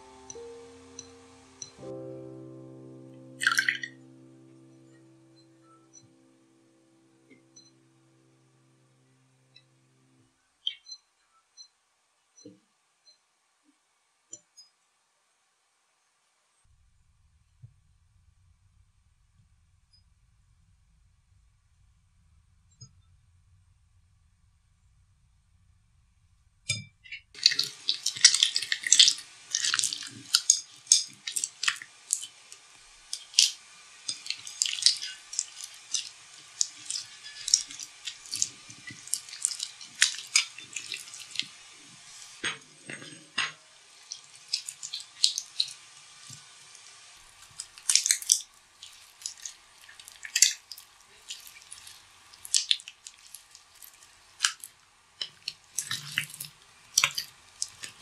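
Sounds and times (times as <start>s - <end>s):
hands squishing slime: 27.4s - 32.4s, 33.1s - 41.6s, 44.1s - 45.8s, 47.3s - 58.0s.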